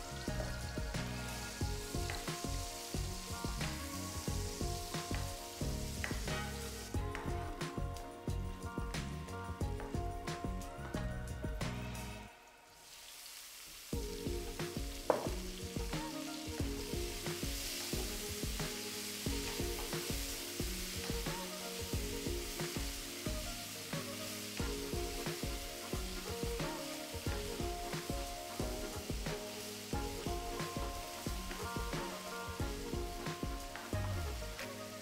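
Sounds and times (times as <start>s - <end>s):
vegetables sizzling in frying pan: 0.0s - 11.0s, 11.6s - 35.0s
background music: 0.0s - 13.2s, 13.9s - 35.0s.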